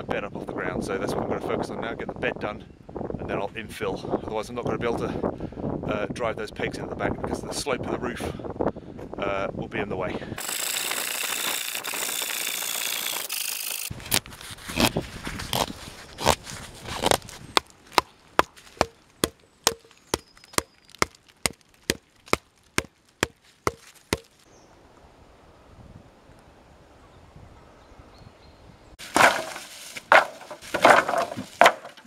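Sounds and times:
scratchy rasping noise: 0:10.4 - 0:17.7
wooden stakes being hammered: 0:17.0 - 0:24.4, 0:29.0 - 0:32.0.

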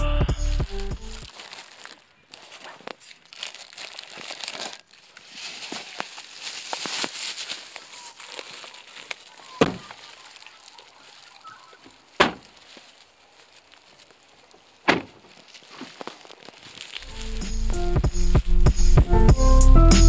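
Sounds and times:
music with steady beat: 0:00.0 - 0:01.2, 0:17.0 - 0:20.0
sharp thuds: 0:12.2 - 0:12.6, 0:14.8 - 0:16.0.

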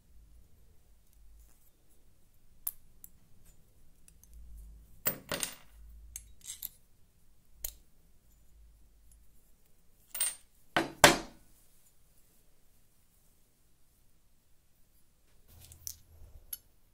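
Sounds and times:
pliers clattering on table: 0:05.1 - 0:06.8.

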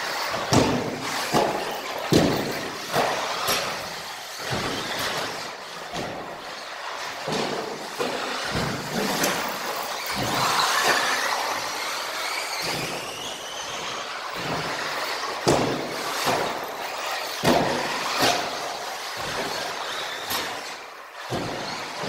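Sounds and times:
toy cars knocking and clattering: 0:00.0 - 0:22.0
high-pitched rc motor whine: 0:09.1 - 0:15.4, 0:16.0 - 0:22.0.

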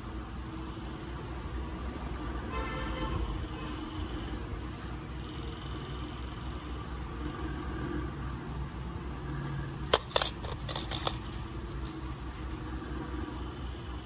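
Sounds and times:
steel tools clinking: 0:09.9 - 0:11.5.

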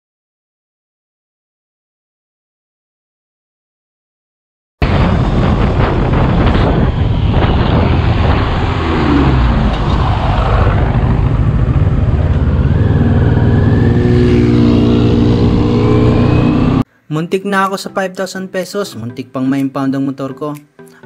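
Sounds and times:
wind rush on microphone: 0:04.8 - 0:16.8
motorcycle engine running: 0:05.5 - 0:16.8.

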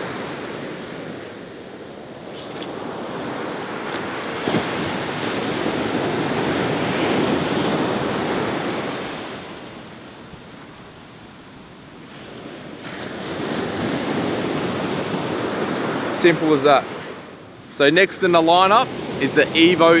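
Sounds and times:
wind buffeting microphone: 0:00.0 - 0:10.6
surf breaking on a beach: 0:00.0 - 0:20.0.

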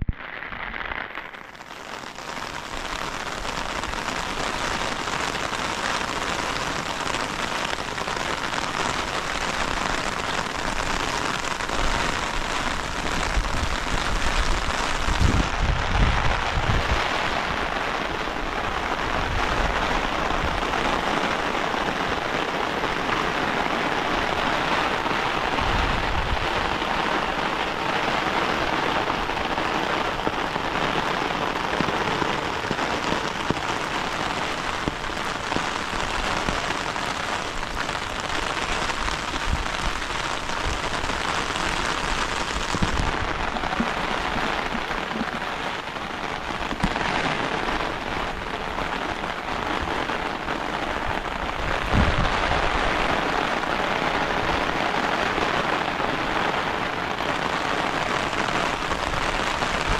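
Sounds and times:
heavy rain: 0:00.0 - 0:59.9.

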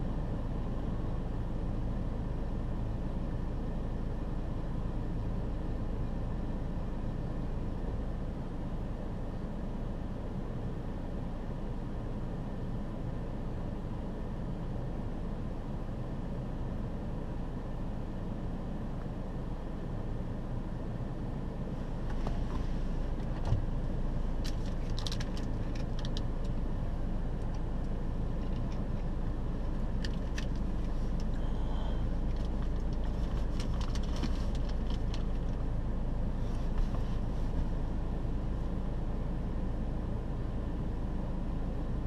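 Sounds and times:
vehicle engine idling: 0:00.0 - 0:42.0
light clicks and rattles: 0:24.4 - 0:26.6, 0:30.0 - 0:31.4, 0:32.3 - 0:35.6.

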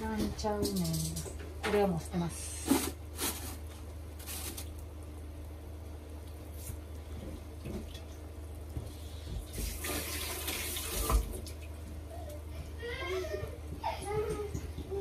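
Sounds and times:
tap water running into sink: 0:09.5 - 0:11.6.

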